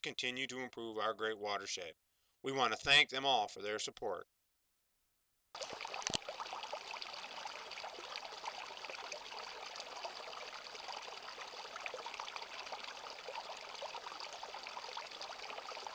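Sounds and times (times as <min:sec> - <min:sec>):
stream splashing over rocks: 0:05.6 - 0:15.9.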